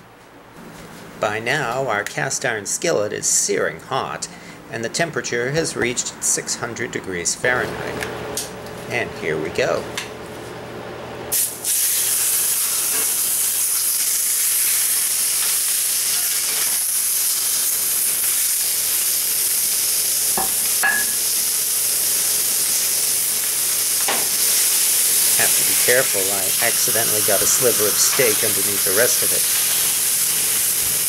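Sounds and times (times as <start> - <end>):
steak sizzling in a skillet: 11.3 - 31.0.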